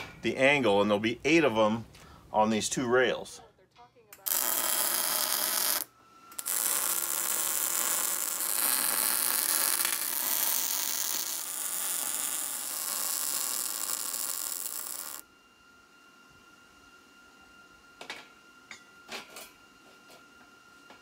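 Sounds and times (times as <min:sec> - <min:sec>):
welder arc crackling: 0:04.2 - 0:15.2.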